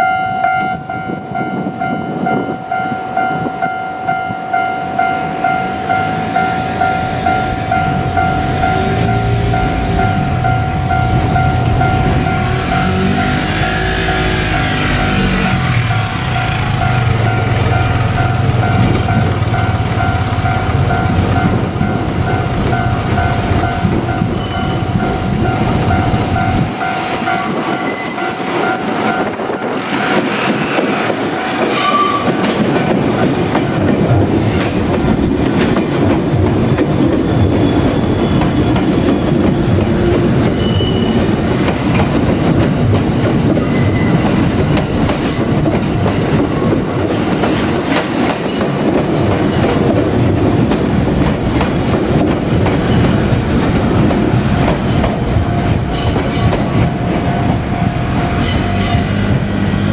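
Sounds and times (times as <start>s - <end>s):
high wheel squeals: 5.9s - 26.6s, 27.4s - 28.4s, 31.6s - 32.6s, 37.1s - 41.6s, 43.6s - 44.4s
train wheels clattering over joints: 8.6s - 59.9s.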